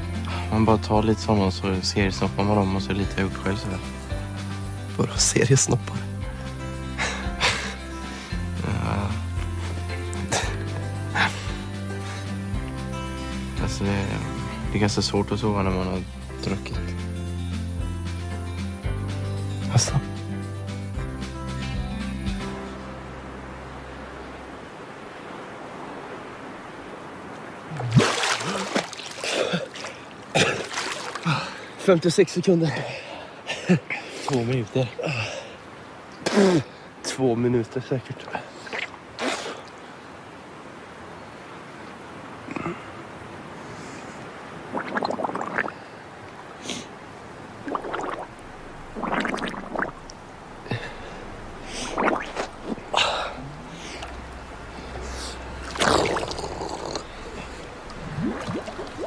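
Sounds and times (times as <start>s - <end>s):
water lapping: 25.0s - 37.1s, 38.1s - 40.2s, 42.4s - 59.0s
swimmer splashing: 27.6s - 31.7s, 47.5s - 59.0s
man gasping for air: 50.6s - 51.8s.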